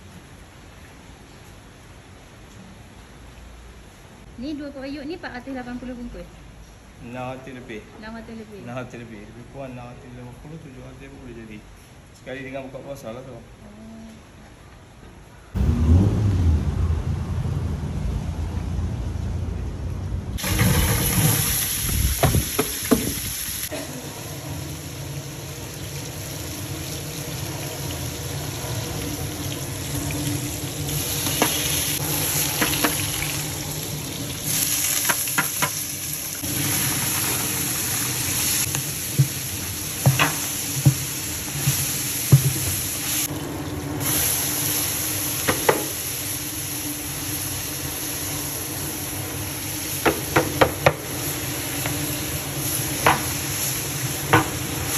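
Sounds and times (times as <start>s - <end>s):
low rumble: 15.6s - 22.2s
shallots sizzling in oil: 20.4s - 54.9s
wooden paddle knocking pot: 40.0s - 42.7s.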